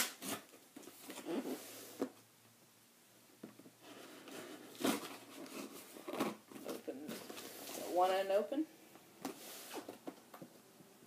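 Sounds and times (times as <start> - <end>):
cardboard and tape rustling: 3.5 - 8.0.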